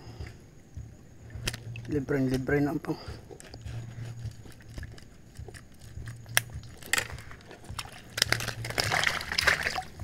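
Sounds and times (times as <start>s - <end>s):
wire mesh basket clicking and rattling: 3.4s - 10.0s.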